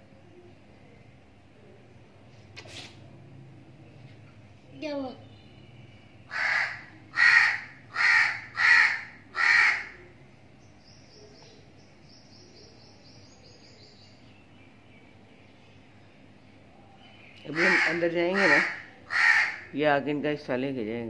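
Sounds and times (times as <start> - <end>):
crow cawing: 6.3 - 10.0, 17.5 - 19.8.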